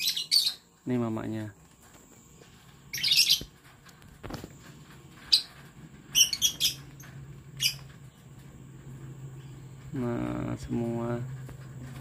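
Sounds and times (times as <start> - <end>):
lovebirds chirping: 0.0 - 3.7, 5.1 - 12.0.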